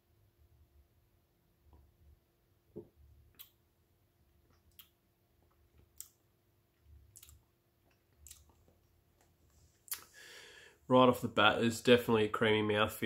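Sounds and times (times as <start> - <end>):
mouth clicks and lip smacks: 3.3 - 3.6, 4.5 - 6.2, 7.0 - 10.1.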